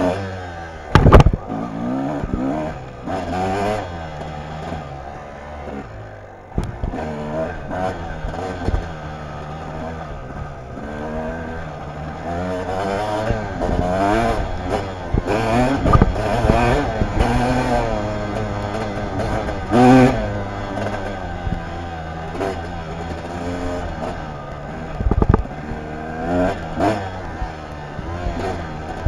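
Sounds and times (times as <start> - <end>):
dirt bike engine revving: 0.0 - 29.0
sharp knocks: 0.9 - 1.4.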